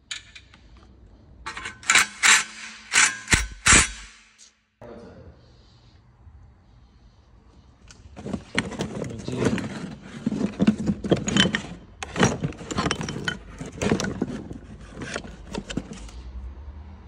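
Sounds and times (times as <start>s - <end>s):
metal parts clinking: 0.0s - 4.1s, 8.5s - 16.1s
cardboard rustling and scraping: 8.1s - 16.2s.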